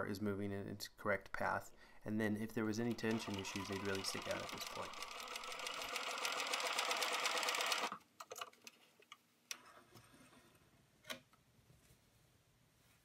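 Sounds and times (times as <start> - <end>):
sewing machine stitching: 2.8 - 8.6.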